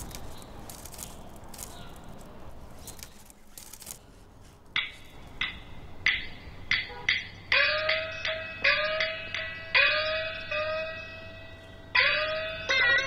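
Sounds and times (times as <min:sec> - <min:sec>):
faint hiss with crackles: 0:00.0 - 0:05.3
ringing percussion strikes: 0:06.1 - 0:13.0.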